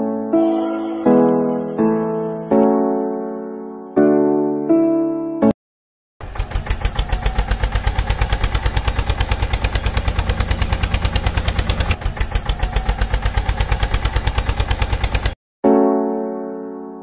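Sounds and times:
tractor engine putting: 6.2 - 15.4.

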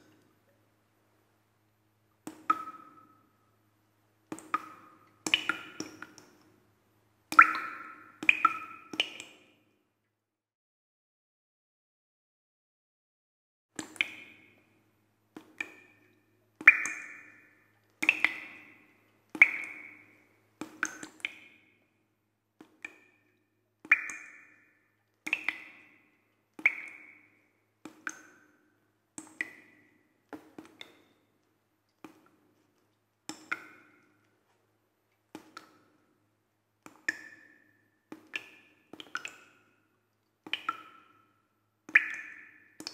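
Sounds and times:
water drops clicking and pinging: 2.3 - 3.3, 4.3 - 6.5, 7.3 - 9.5, 13.8 - 14.7, 15.4 - 21.9, 22.6 - 34.4, 36.8 - 42.9.

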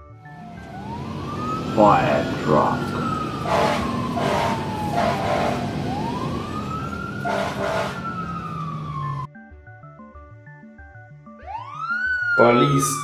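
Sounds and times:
fire engine siren wailing: 0.0 - 9.3, 11.2 - 13.0
low engine rumble: 0.3 - 9.3
short horn blasts: 3.4 - 5.7, 7.2 - 8.1.

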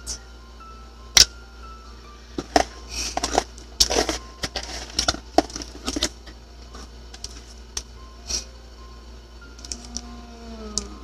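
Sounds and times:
packaging rustling and crinkling: 2.4 - 6.2.

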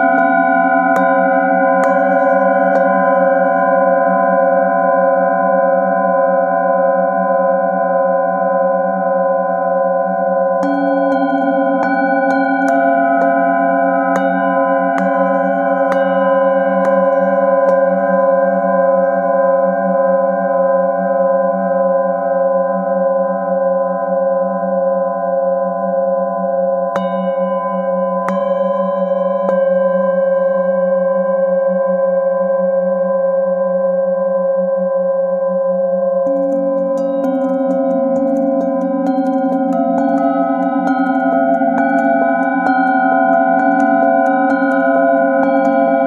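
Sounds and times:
metal singing bowls ringing: 0.0 - 5.4, 9.8 - 20.6, 27.0 - 31.8, 36.3 - 46.0.

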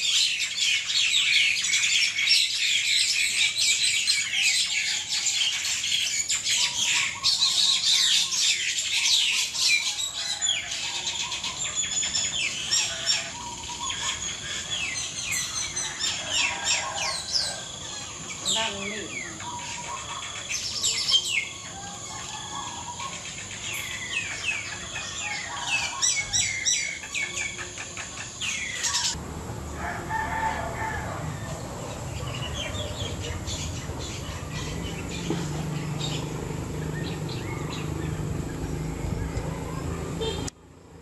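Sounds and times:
mynas calling and chattering: 0.0 - 40.5
low background rumble: 29.1 - 40.5.

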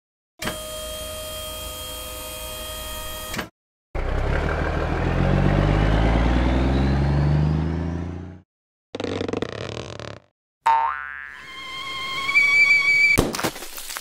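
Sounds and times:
truck engine starting and revving: 4.0 - 8.4.

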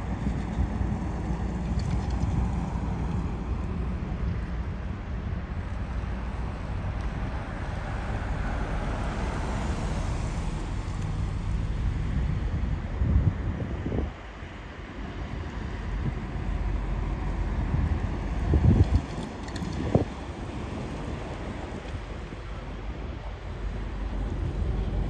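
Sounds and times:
low engine rumble: 0.0 - 25.0
road traffic: 0.0 - 25.0
wind buffeting microphone: 0.0 - 25.0
car driving past: 7.3 - 12.0.

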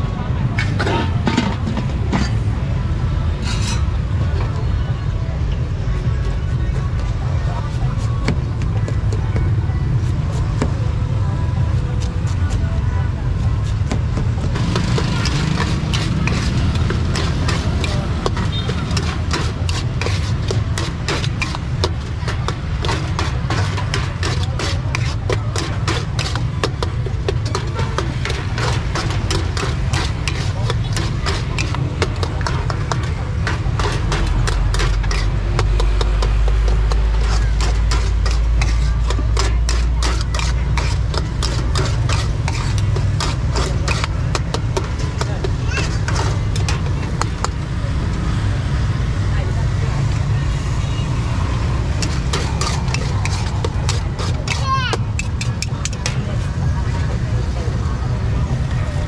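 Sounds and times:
street traffic rumble: 0.0 - 59.0
metal spoon scraping metal bowl: 0.6 - 2.5, 3.3 - 4.1, 13.5 - 47.7, 51.6 - 56.5.

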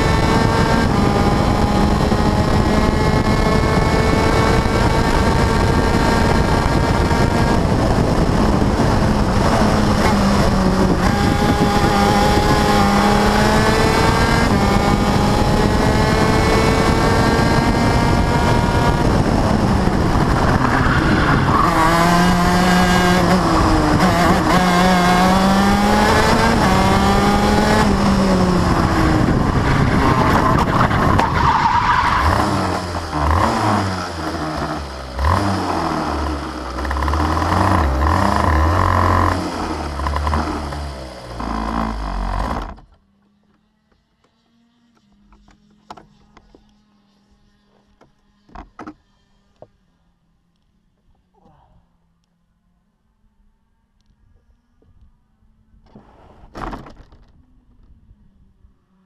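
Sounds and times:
race car engine revving: 0.0 - 42.9
wind noise: 0.0 - 42.9.

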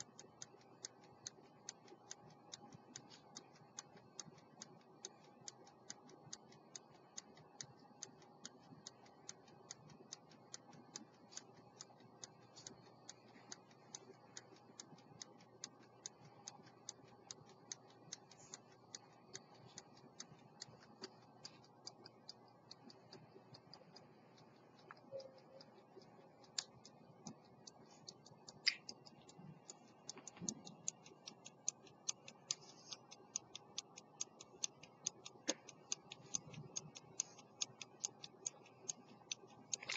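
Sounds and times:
pocket watch ticking: 0.0 - 39.9.

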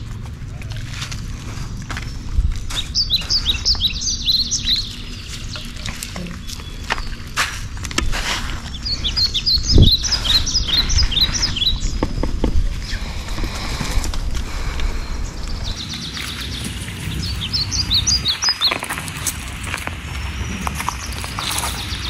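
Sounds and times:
birds chirping: 0.0 - 22.0.

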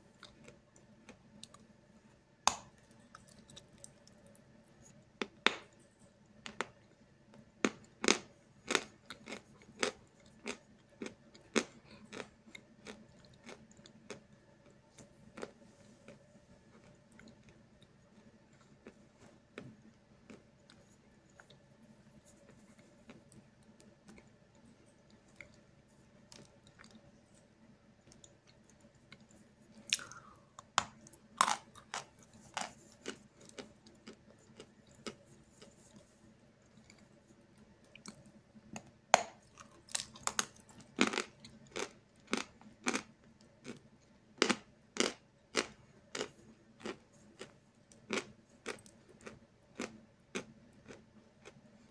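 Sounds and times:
dry crunches of chewing chalk: 7.7 - 17.6, 28.1 - 36.1, 39.4 - 43.8, 44.4 - 51.6.

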